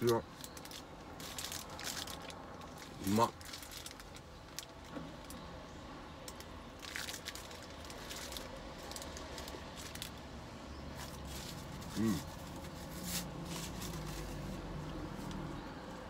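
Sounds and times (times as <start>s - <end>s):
paper wrapper crinkling: 0.0s - 4.8s, 6.3s - 10.2s, 11.0s - 14.8s.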